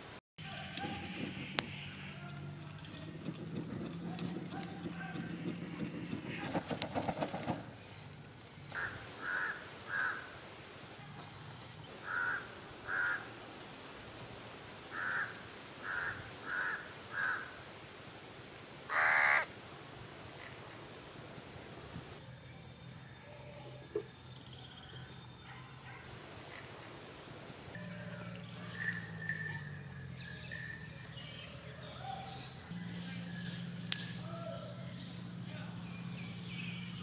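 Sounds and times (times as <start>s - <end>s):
rustling: 1.6s - 8.8s
crow cawing: 8.8s - 10.3s, 12.0s - 13.3s, 14.9s - 17.6s, 18.9s - 19.5s.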